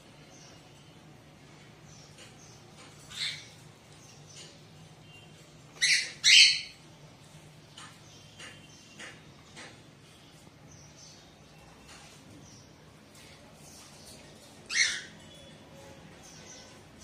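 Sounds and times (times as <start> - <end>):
cockatiel chirping: 5.8 - 6.8.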